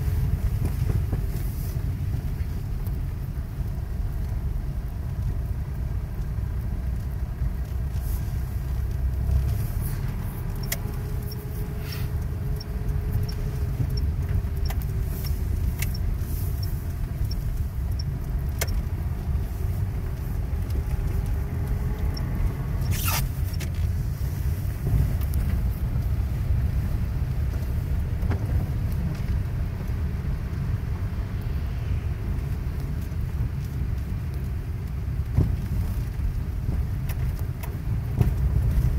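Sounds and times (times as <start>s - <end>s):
car engine and tyres rumbling: 0.0s - 38.9s
faint regular ticking: 10.5s - 22.5s.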